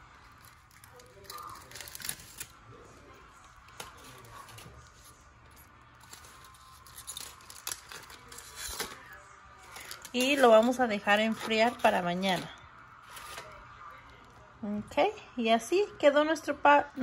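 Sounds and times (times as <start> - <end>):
aluminium foil crinkling: 0.0 - 14.3.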